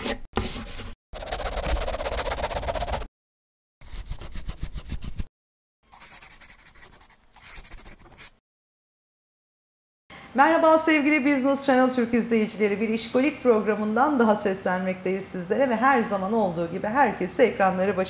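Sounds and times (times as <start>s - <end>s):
pencil scribbling on paper: 0.0s - 3.1s, 3.8s - 5.3s, 5.9s - 8.4s.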